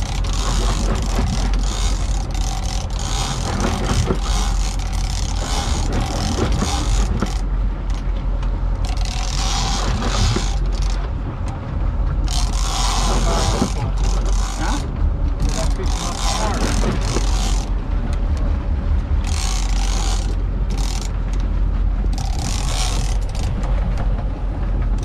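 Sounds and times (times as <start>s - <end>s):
fishing reel whirring: 0.0s - 8.1s, 8.8s - 11.0s, 12.2s - 17.8s, 19.2s - 21.4s, 22.1s - 23.6s
boat engines humming: 0.0s - 25.0s
wind and water rushing: 0.0s - 25.0s.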